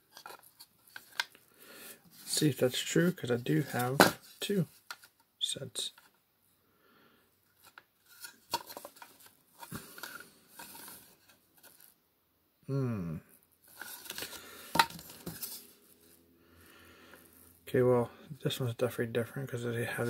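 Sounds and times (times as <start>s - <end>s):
person humming: 12.7s - 13.2s.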